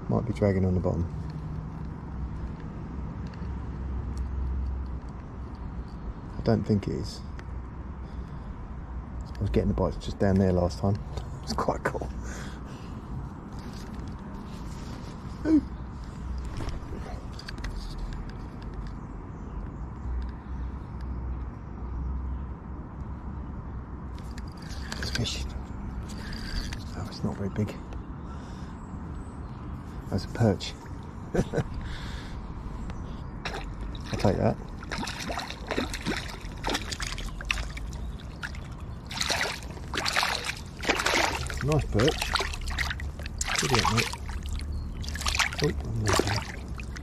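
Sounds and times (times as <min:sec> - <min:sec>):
fish splashing at water surface: 0:33.4 - 0:47.0.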